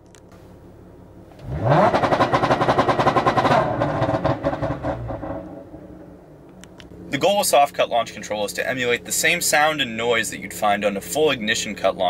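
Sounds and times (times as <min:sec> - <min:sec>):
car engine idling: 0:00.0 - 0:12.0
rev limiter stutter: 0:01.4 - 0:05.7
engine revving up: 0:01.4 - 0:05.8.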